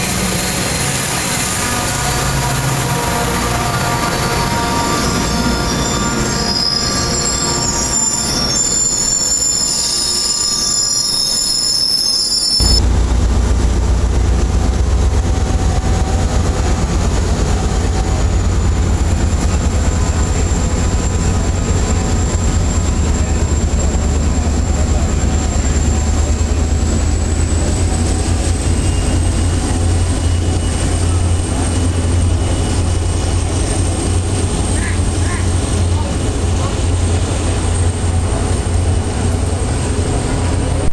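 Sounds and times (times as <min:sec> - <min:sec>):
diesel locomotive engine drone: 0:00.0 - 0:40.9
thin high whine: 0:04.6 - 0:13.0.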